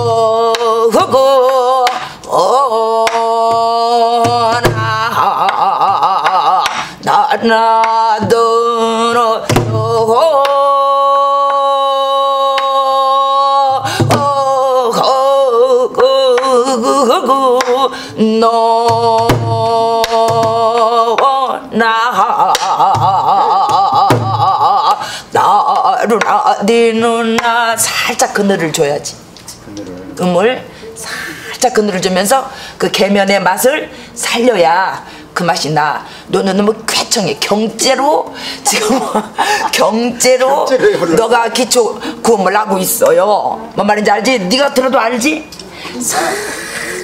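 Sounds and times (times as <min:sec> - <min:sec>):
woman singing wavering melody: 0:00.0 - 0:29.0.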